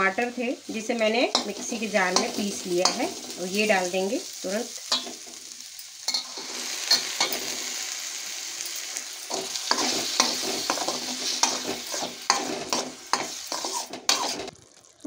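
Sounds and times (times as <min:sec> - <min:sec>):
puree sizzling in a pan: 0:00.0 - 0:15.0
spoon scraping pan: 0:01.3 - 0:03.4, 0:09.3 - 0:14.5.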